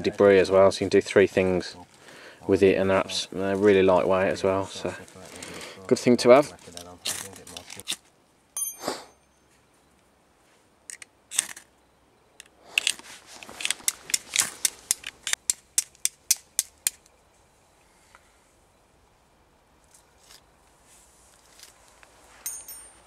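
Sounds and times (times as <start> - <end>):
steel striking flint: 8.6 - 9.5, 22.4 - 23.0.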